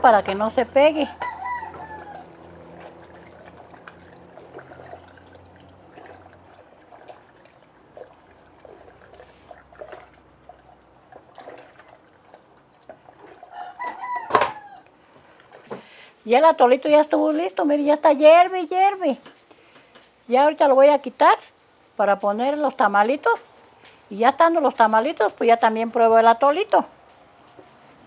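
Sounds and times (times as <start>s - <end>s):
liquid sloshing in a pot: 0.0s - 17.6s.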